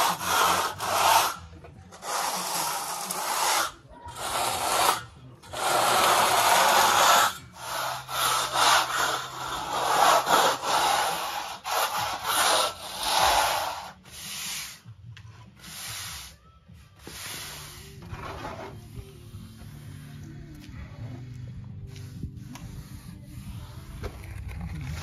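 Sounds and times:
hand float scraping cement render: 0.0s - 14.8s, 17.0s - 20.1s.

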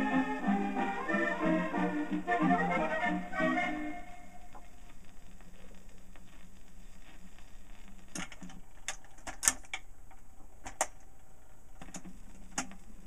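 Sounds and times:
record changer clicks and clunks: 6.1s - 11.2s, 11.8s - 12.8s.

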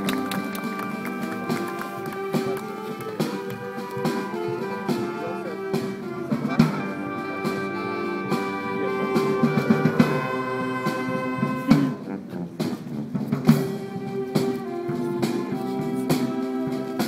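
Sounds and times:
brass sustained chords: 3.6s - 12.6s.

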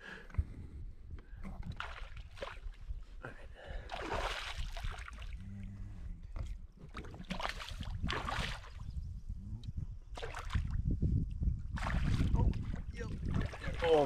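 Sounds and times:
water splashing and sloshing: 1.4s - 5.6s, 6.2s - 8.9s, 10.1s - 14.0s.

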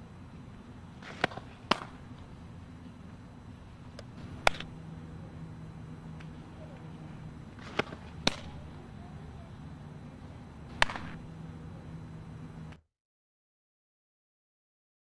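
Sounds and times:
steady low hum: 0.0s - 12.8s
ball smacking into leather glove: 1.0s - 2.0s, 4.4s - 4.7s, 10.7s - 11.2s.

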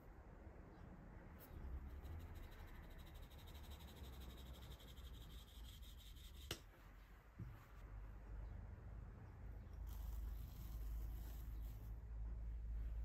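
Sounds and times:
flour sieve scratchy ticking: 1.9s - 6.1s.

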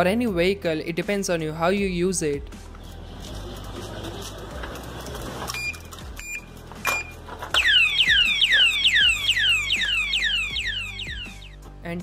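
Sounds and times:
alarm siren whooping: 7.6s - 11.6s.

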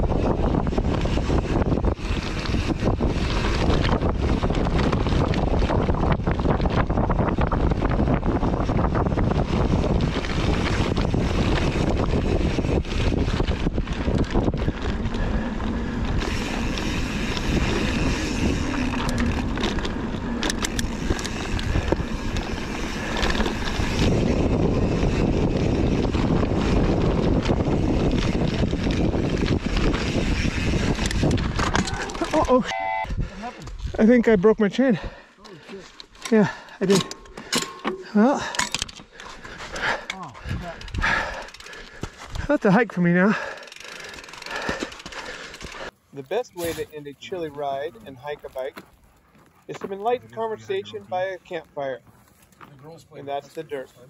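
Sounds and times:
wind rushing over microphone: 0.0s - 32.4s
bike knocking and rattling: 0.0s - 32.7s, 35.0s - 45.9s, 46.6s - 50.2s.

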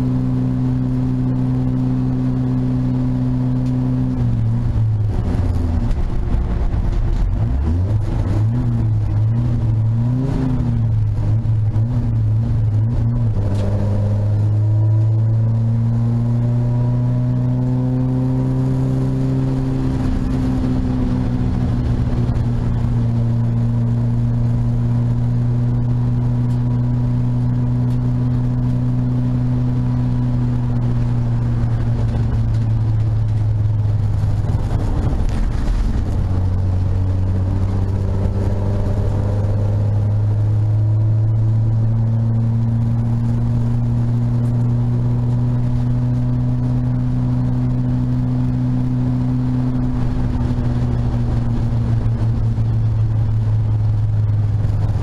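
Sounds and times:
race car engine from inside cabin: 0.0s - 55.0s
road and wind noise: 0.0s - 55.0s.

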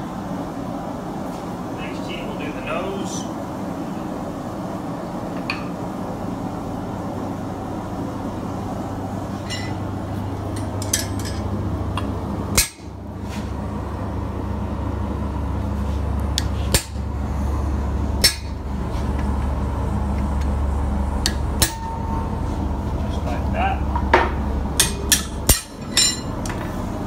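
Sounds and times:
steady low hum: 0.0s - 27.0s
hammer striking metal punch: 12.6s - 12.9s, 18.2s - 18.6s, 21.2s - 22.2s, 24.0s - 26.3s.

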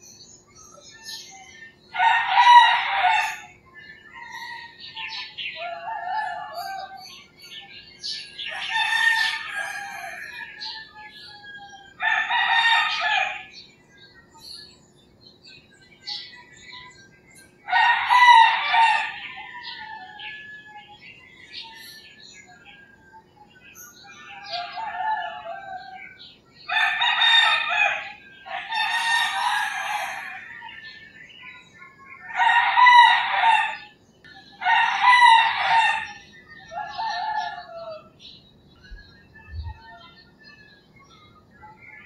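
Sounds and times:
small birds chirping: 0.0s - 42.0s
roosters crowing: 1.9s - 13.7s, 17.6s - 22.8s, 23.6s - 31.4s, 32.2s - 38.4s.

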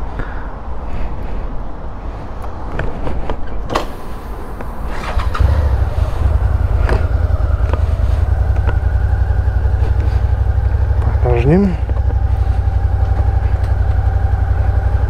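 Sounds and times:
motorcycle engine starting and idling: 3.7s - 15.0s.

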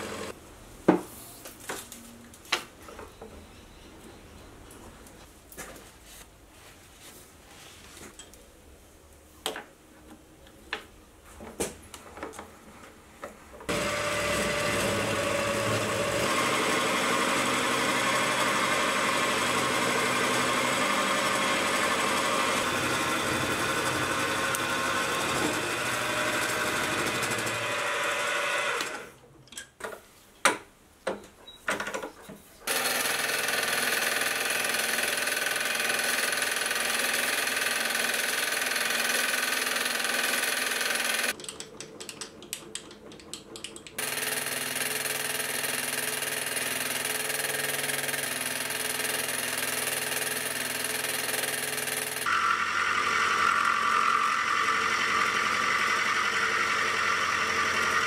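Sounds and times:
milling machine cutting steel: 13.7s - 29.0s, 44.0s - 58.0s.

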